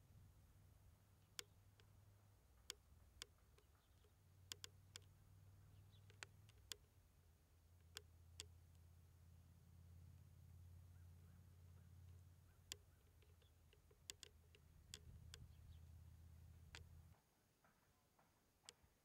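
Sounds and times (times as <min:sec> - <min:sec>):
faint low hum: 0:00.0 - 0:19.0.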